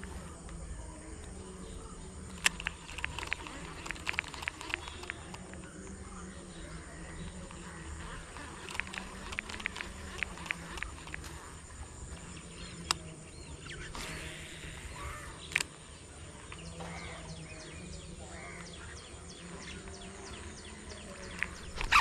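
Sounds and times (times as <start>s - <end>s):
rural background: 0.0s - 22.0s
sharp clicks: 2.2s - 6.0s, 7.3s - 11.8s, 12.4s - 15.8s, 21.2s - 22.0s
crow cawing: 14.6s - 15.4s.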